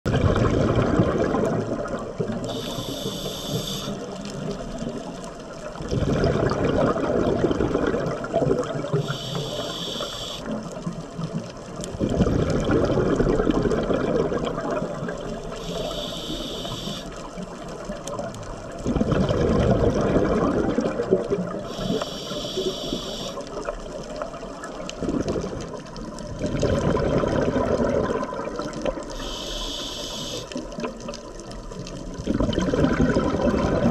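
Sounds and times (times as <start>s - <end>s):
rush of exhaled bubbles: 0.1s - 5.0s, 5.6s - 17.5s, 18.1s - 33.9s
regulator inhale hiss: 2.5s - 4.1s, 9.0s - 10.5s, 15.5s - 17.2s, 21.6s - 23.5s, 29.1s - 30.6s.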